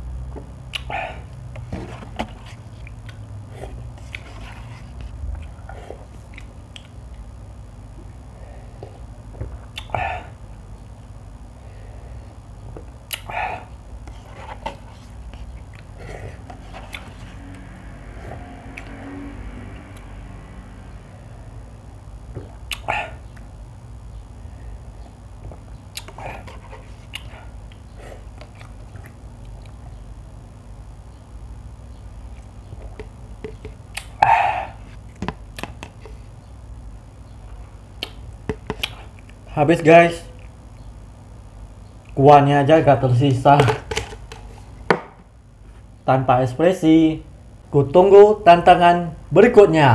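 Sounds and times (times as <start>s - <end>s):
steady low hum: 0.0s - 49.9s
mouth noises eating noodles: 22.4s - 23.5s.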